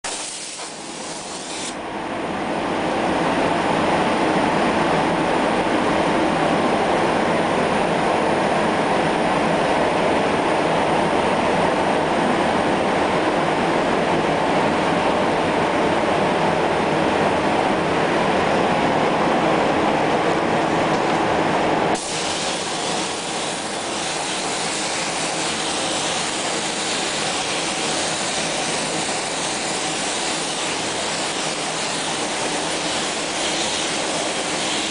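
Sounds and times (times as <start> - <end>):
spray gun hissing: 0.0 - 1.8, 22.0 - 34.9.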